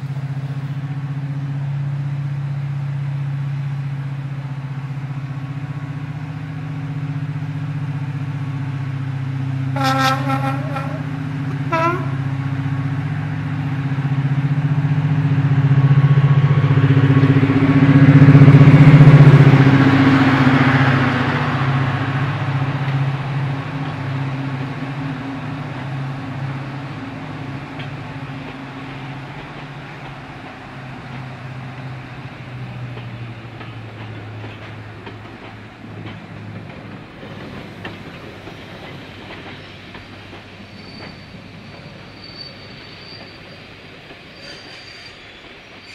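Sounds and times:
diesel locomotive passing: 0.0 - 45.9
locomotive horn toots: 9.8 - 12.4.

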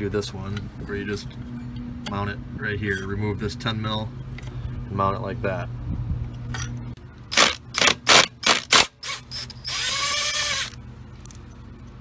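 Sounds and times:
impact driver bursts: 7.3 - 10.8
impact driver motor running: 7.3 - 10.8.

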